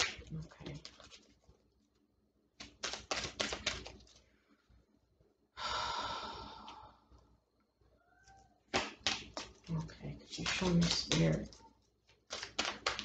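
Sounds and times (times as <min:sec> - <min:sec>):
cards clicking and tapping: 0:02.6 - 0:04.2, 0:08.7 - 0:13.0.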